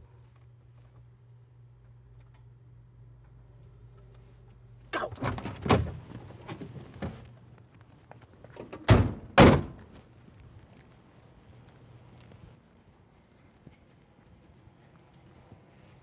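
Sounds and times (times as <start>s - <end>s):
car doors slamming shut: 8.6s - 9.9s.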